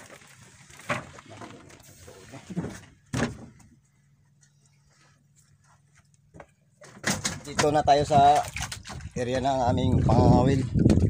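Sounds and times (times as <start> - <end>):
knocks and thumps on wooden boat: 2.6 - 3.8, 6.3 - 11.0.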